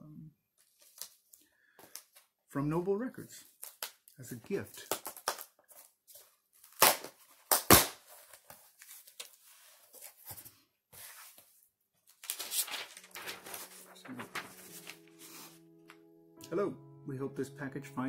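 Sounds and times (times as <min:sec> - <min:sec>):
package ripping: 0:04.8 - 0:05.6, 0:06.6 - 0:08.5, 0:12.1 - 0:13.8
paper rustling: 0:04.8 - 0:16.0.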